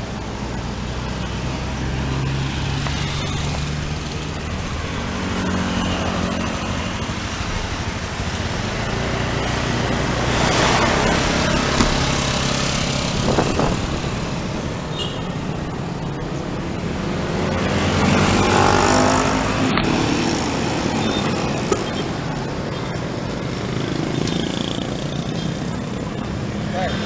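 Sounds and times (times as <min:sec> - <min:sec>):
motorcycle engines humming: 0:00.0 - 0:27.0
passing traffic rush: 0:00.0 - 0:27.0
road and wind noise: 0:00.0 - 0:27.0.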